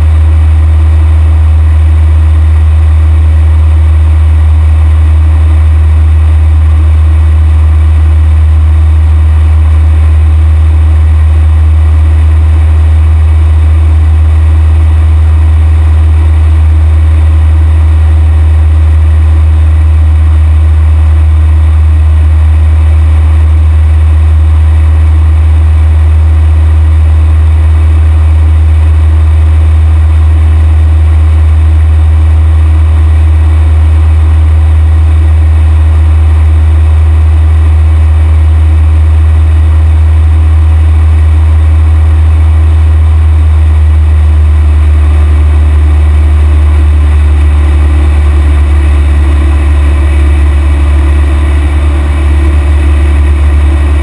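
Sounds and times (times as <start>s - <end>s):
airplane engine and propeller droning: 42.0s - 54.0s.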